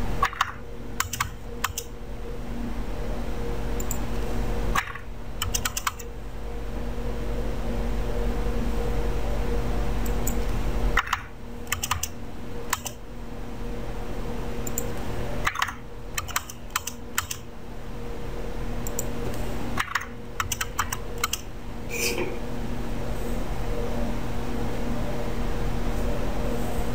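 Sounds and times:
steady hum: 0.0s - 26.9s
keyboard keys clicking: 0.2s - 1.9s, 4.8s - 6.0s, 11.0s - 12.1s, 12.7s - 13.0s, 14.7s - 17.4s, 19.8s - 21.4s.

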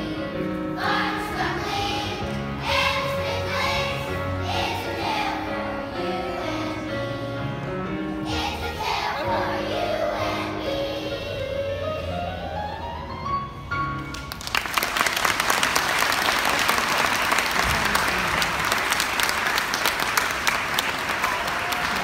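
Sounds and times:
audience applause: 14.1s - 22.0s.

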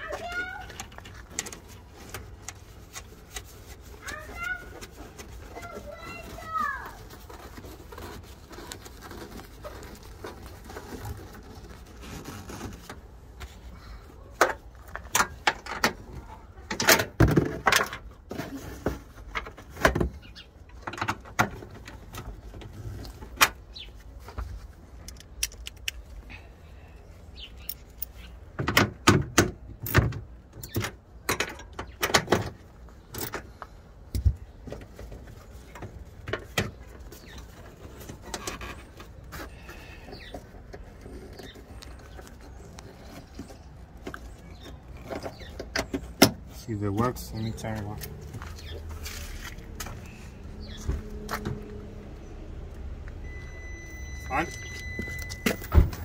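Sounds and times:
clicks and rattles of trim and tools: 25.0s - 26.2s.

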